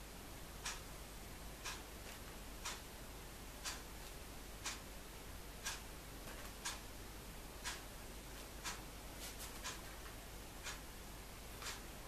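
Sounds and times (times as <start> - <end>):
clock ticking: 0.6 - 0.9, 1.6 - 2.0, 2.6 - 2.9, 3.6 - 3.9, 4.6 - 4.9, 5.6 - 5.9, 6.5 - 6.9, 7.6 - 7.9, 8.5 - 8.9, 9.6 - 10.9, 11.6 - 11.9.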